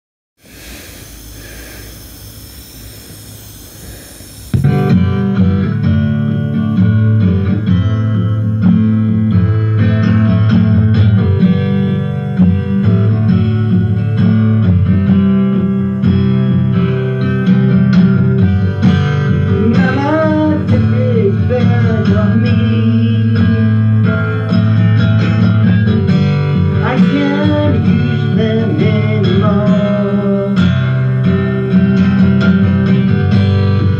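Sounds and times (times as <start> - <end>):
harmonica playing: 0.4 - 21.7
acoustic guitar strumming: 4.5 - 33.9.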